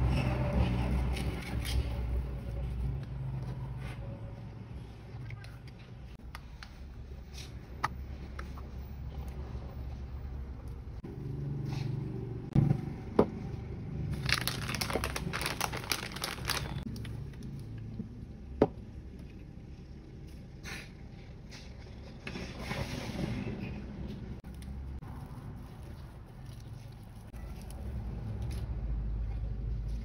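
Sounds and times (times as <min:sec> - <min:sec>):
plastic bag crinkling: 0:14.1 - 0:17.1.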